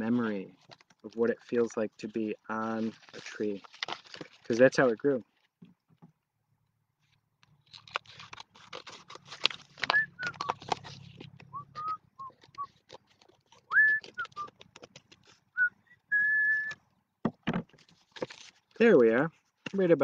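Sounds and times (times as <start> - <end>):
bark crackling being cut: 7.7 - 15.4
person whistling: 9.9 - 10.6, 11.5 - 12.8, 13.7 - 14.5, 15.5 - 16.8.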